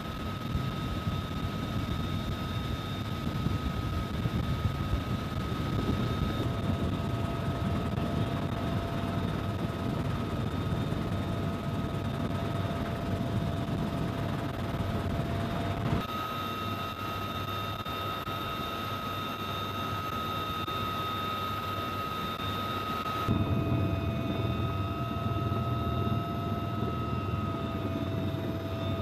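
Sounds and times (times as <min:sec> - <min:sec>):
faint whine: 0:00.0 - 0:29.0
helicopter rotor and turbine drone: 0:00.0 - 0:29.0
thin constant whine: 0:00.0 - 0:29.0.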